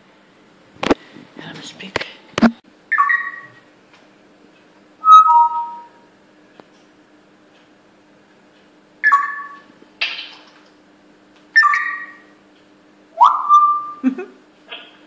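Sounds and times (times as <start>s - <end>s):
faint steady hum: 0.0s - 15.0s
parrot squawk: 2.9s - 3.6s, 9.0s - 9.6s, 11.6s - 12.2s, 13.2s - 14.0s
parrot whistles: 2.9s - 3.6s, 5.0s - 6.0s, 9.0s - 9.7s, 11.6s - 12.3s, 13.2s - 14.0s.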